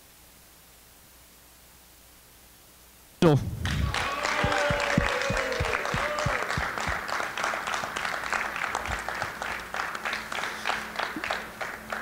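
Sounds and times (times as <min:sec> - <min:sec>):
people cheering: 0:03.4 - 0:12.0
crowd clapping: 0:03.5 - 0:12.0.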